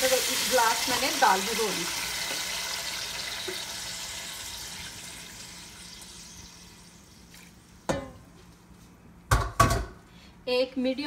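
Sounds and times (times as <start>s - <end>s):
hot oil hissing and sizzling: 0.0s - 7.2s
water pouring into pot: 0.0s - 7.6s.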